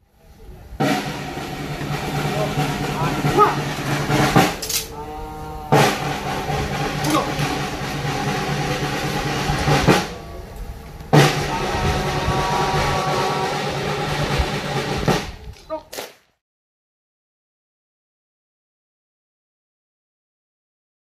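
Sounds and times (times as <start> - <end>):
band holding notes: 0.6 - 15.6
drum rolls and strikes: 0.7 - 15.5.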